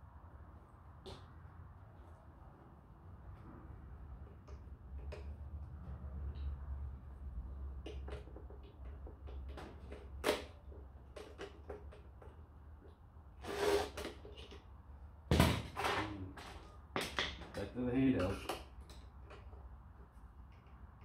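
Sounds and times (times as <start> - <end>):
brief scrape: 13.4 - 14.2.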